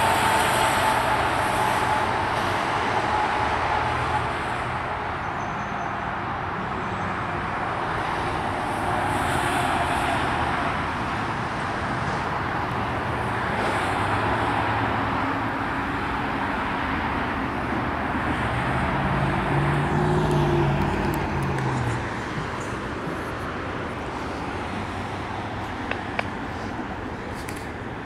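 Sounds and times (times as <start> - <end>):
highway traffic noise: 0.0 - 28.0
vehicle engine drone passing: 16.8 - 27.2.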